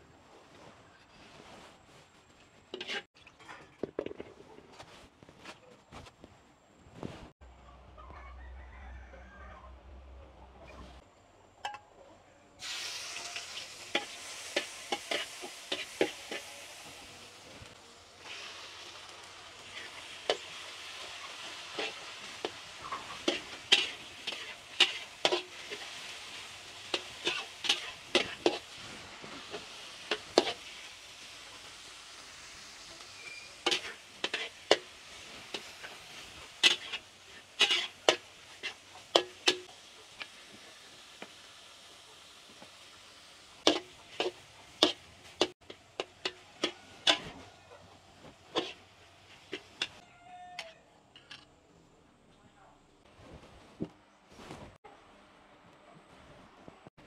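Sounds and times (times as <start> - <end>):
food sizzling in a pan: 2.7 - 3.1, 12.6 - 50.0
metal utensil scraping pan: 2.7 - 4.7, 12.6 - 17.0, 19.6 - 31.3, 32.7 - 40.4, 43.6 - 47.6, 48.2 - 50.0.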